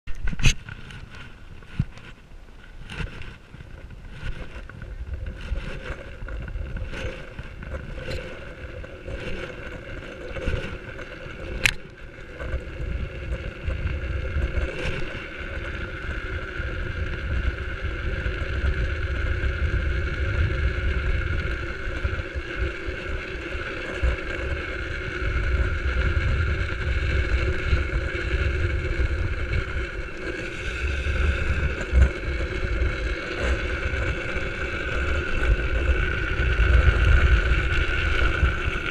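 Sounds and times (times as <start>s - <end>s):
hard wheels rumbling on asphalt: 0.0s - 38.9s
wind on microphone: 0.1s - 38.9s
sharp click: 11.6s - 11.9s.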